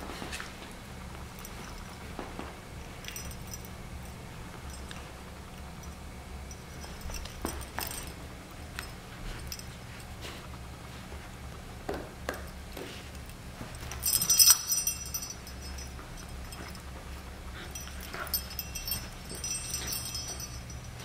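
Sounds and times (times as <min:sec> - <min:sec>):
metallic jingling: 0:02.8 - 0:10.1, 0:13.1 - 0:21.0.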